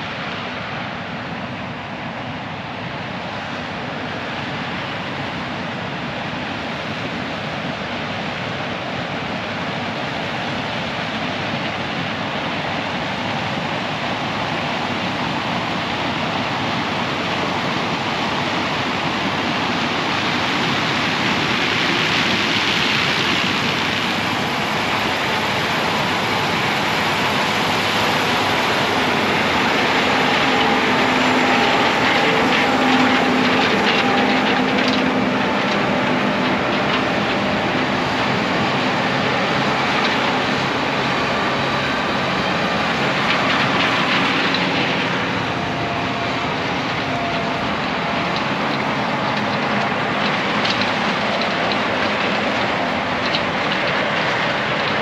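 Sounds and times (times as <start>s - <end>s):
combine harvester machinery rushing: 0.0s - 55.0s
engine hum: 0.0s - 55.0s.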